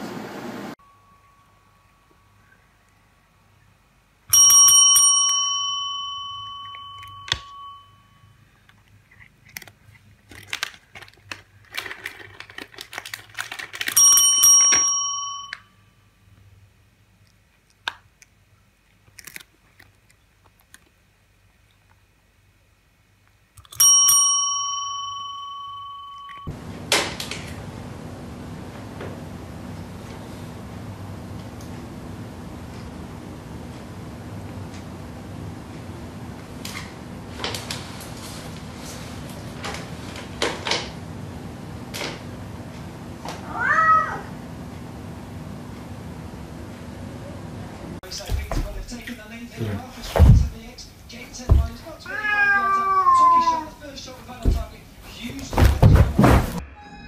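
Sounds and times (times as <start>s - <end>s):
service bell ding: 0.8s - 2.5s, 4.3s - 8.4s, 14.0s - 16.0s, 23.8s - 26.6s
cat meowing: 43.4s - 44.3s, 52.0s - 53.8s.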